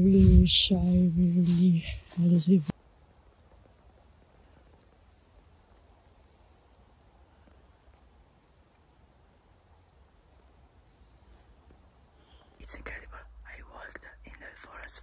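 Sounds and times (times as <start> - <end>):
faint forest ambience: 0.0 - 15.0
songbird calling: 5.7 - 6.7, 9.4 - 10.2.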